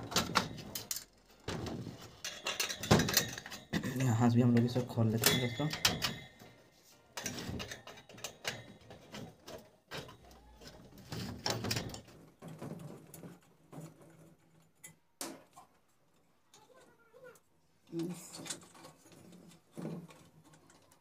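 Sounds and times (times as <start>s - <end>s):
metal wire guard clicking and rattling: 0.0s - 15.8s, 18.2s - 21.0s.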